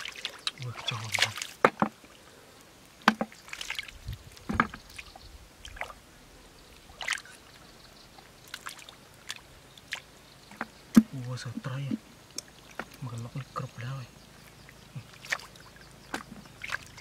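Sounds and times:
hands splashing in muddy puddle: 0.0s - 1.7s, 3.1s - 5.1s, 15.0s - 17.0s.

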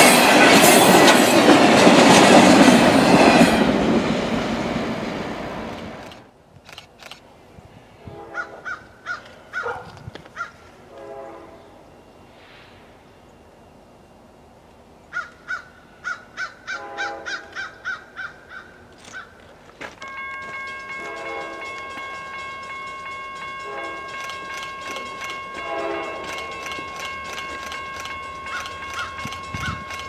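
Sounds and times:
locomotive bell ringing: 19.9s - 30.0s
multi-chime air horn: 20.0s - 30.0s.

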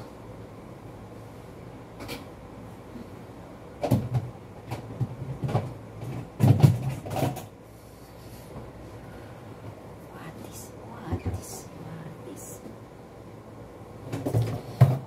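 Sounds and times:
kitchen cupboard knocks and clatters: 5.0s - 7.4s.

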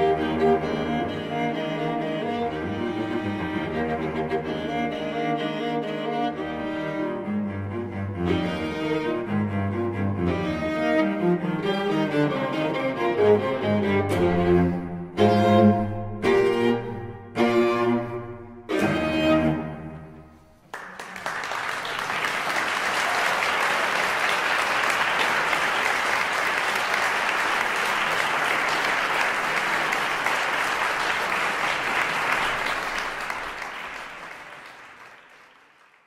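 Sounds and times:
viola and cello chord: 0.0s - 20.1s
audience applauding: 20.6s - 36.0s.

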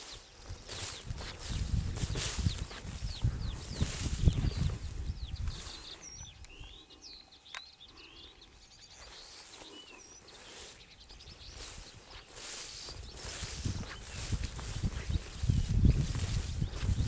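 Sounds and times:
small songbirds singing: 0.0s - 17.0s
microphone rumble: 0.7s - 6.3s, 13.0s - 17.0s.

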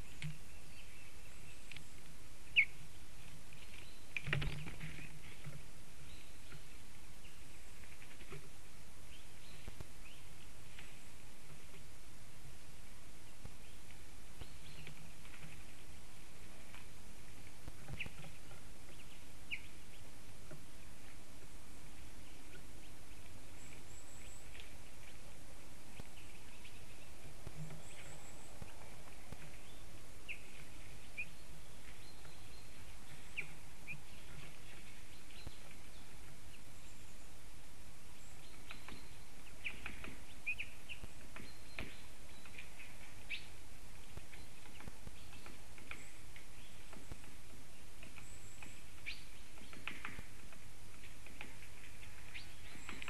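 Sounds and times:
small birds chirping: 0.0s - 53.0s.

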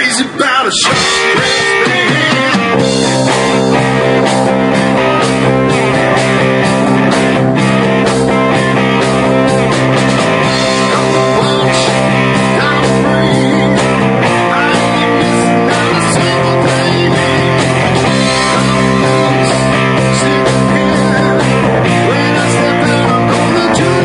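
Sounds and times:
live rock band playing: 0.0s - 24.0s.

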